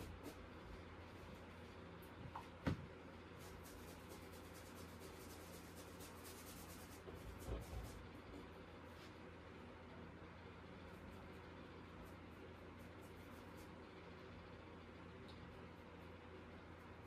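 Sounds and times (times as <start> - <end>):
paintbrush strokes on canvas: 0.0 - 2.0, 3.1 - 9.6, 10.7 - 14.4
steady low hum: 0.0 - 17.0.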